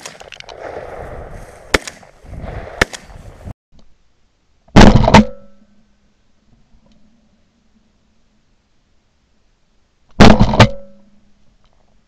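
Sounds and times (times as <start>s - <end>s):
rustling through dry grass: 0.0s - 3.5s
sharp snaps: 1.7s - 2.1s, 2.8s - 3.2s
loud shotgun blast: 1.7s - 3.1s, 10.2s - 11.0s.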